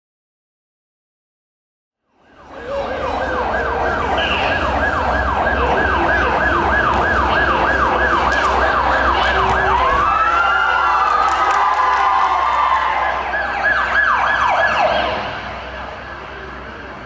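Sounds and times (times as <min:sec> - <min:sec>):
siren sound effect: 0:02.1 - 0:11.0, 0:12.8 - 0:16.8.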